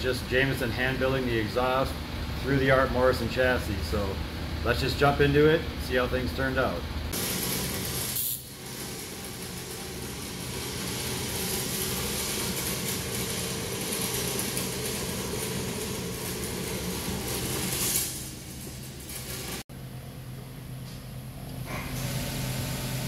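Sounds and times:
low electrical hum: 0.0s - 22.0s
welding arc hissing: 7.1s - 19.6s.

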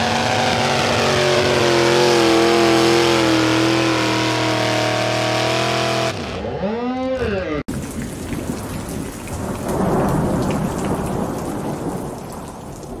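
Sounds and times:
tractor engine revving: 0.0s - 7.7s.

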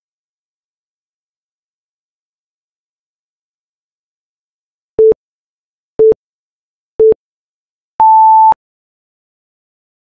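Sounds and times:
electronic timer beeps: 8.0s - 8.6s.

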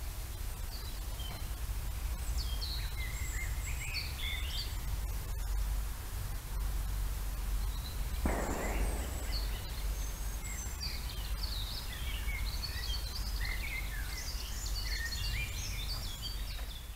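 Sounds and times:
low steady hum: 0.0s - 16.9s
songbirds chirping and trilling: 0.2s - 5.7s, 7.3s - 16.9s
short rough noise burst: 8.3s - 11.6s.

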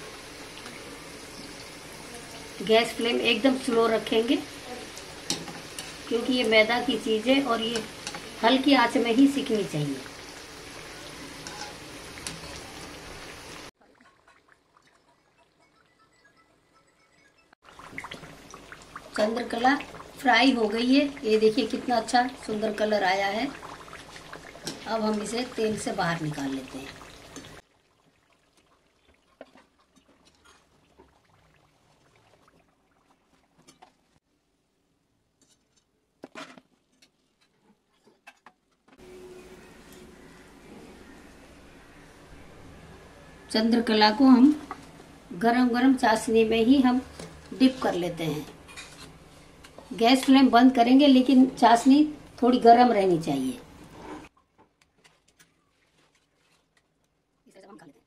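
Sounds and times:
pastries sizzling in oil: 0.0s - 15.8s, 17.6s - 34.2s, 43.5s - 54.3s.

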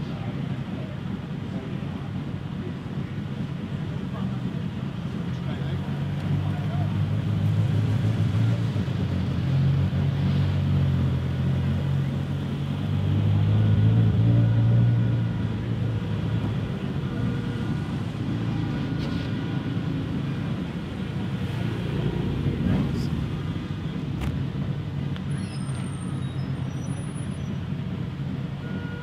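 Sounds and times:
car engine running at low revs: 0.0s - 29.0s.

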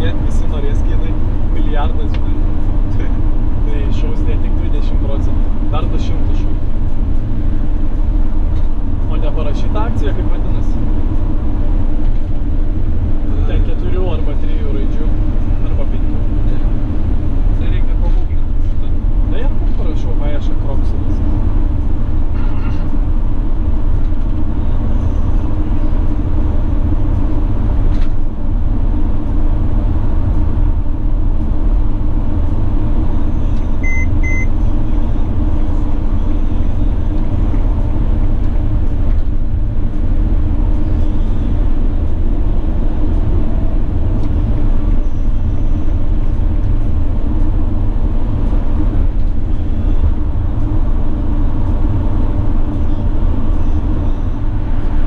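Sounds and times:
minibus cabin drone: 0.0s - 55.0s
short electronic beeps: 33.8s - 34.5s.

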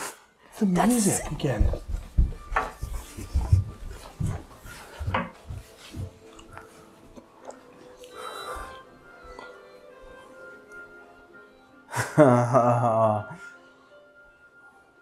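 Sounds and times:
song playing faintly from television: 0.0s - 15.0s.

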